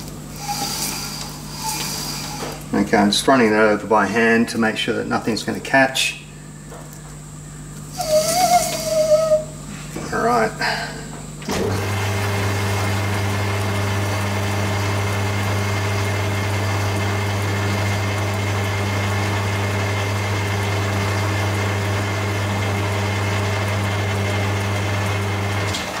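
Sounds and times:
metal lathe humming: 0.0s - 3.0s, 7.9s - 9.6s, 11.5s - 26.0s
clamp polishing spinning piston: 0.3s - 2.7s, 8.0s - 9.4s.

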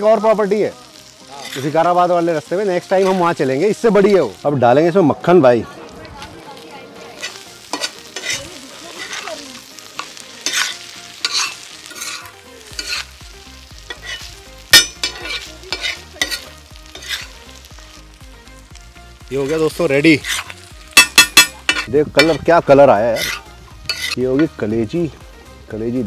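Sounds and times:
meat sizzling in a pan: 0.0s - 26.0s
metal spatula scraping pan: 1.4s - 1.8s, 7.2s - 9.4s, 10.0s - 13.1s, 13.8s - 17.4s, 20.2s - 24.6s.

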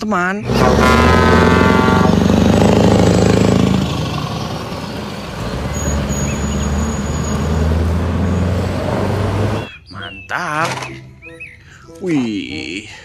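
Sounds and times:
diesel truck driving past: 0.4s - 9.7s.

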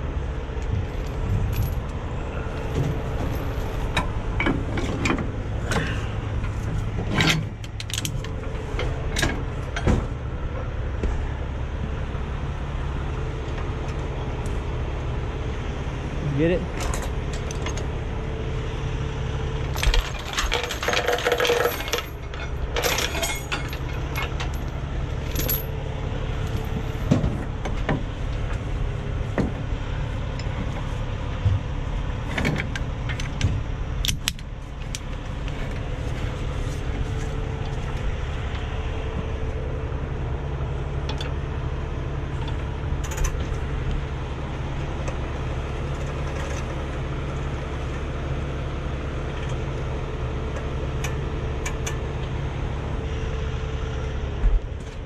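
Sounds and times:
truck engine idling: 0.0s - 55.0s
metal clinks and rattles: 19.7s - 25.8s.

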